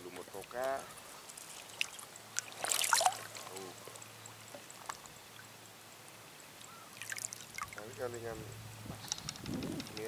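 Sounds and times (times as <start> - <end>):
water splash: 1.5 - 3.6, 7.0 - 7.8.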